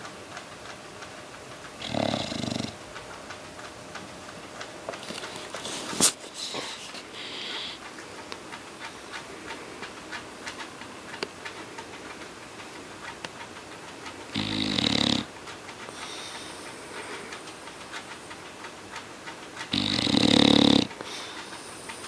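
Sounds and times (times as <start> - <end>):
dog breathing softly: 1.8 - 2.8, 5.2 - 9.9, 14.4 - 18.5, 19.7 - 22.0
dog snoring: 1.8 - 2.8, 14.3 - 15.3, 19.7 - 21.3.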